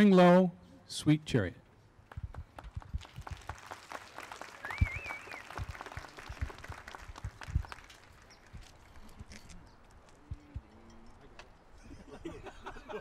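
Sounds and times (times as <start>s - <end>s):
audience applause: 2.1s - 8.6s
short warbling whistle: 4.6s - 5.5s.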